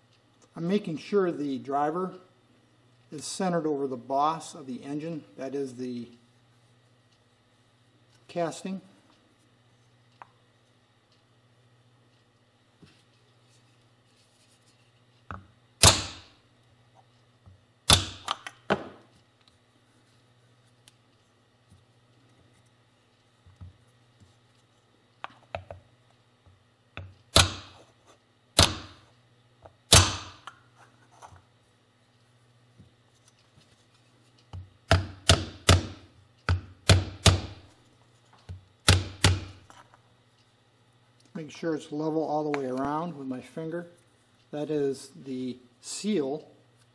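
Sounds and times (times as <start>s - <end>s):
mallet striking wooden block: 34.9s - 37.6s.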